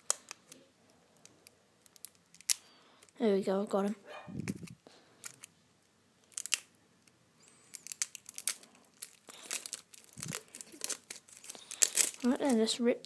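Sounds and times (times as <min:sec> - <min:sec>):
cellophane wrapper crinkling: 0:07.4 - 0:13.0.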